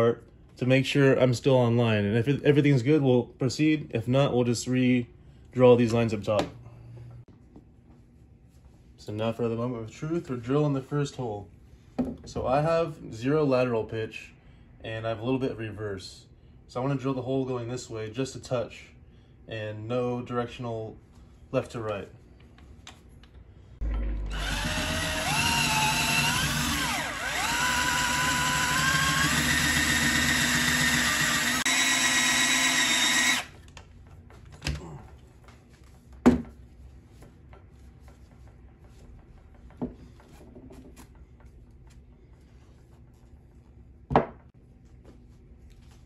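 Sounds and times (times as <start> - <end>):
cordless drill whining: 23.9 - 33.6.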